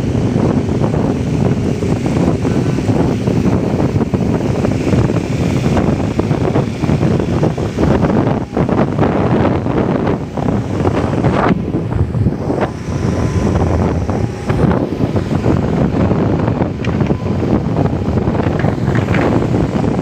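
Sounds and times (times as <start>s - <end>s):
road noise: 0.0s - 20.0s
wind buffeting microphone: 0.0s - 20.0s
motorcycle engine: 7.6s - 20.0s.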